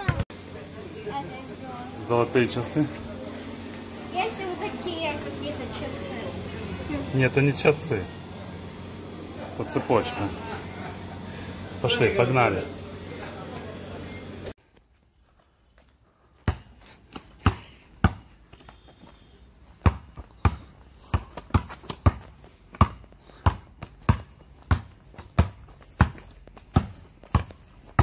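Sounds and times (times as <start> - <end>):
basketball bouncing on asphalt: 0.0 - 0.3, 15.8 - 28.0.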